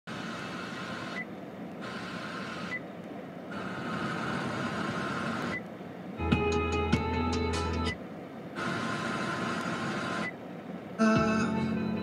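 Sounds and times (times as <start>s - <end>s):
radio static hiss: 0.1s - 5.8s, 8.4s - 11.4s.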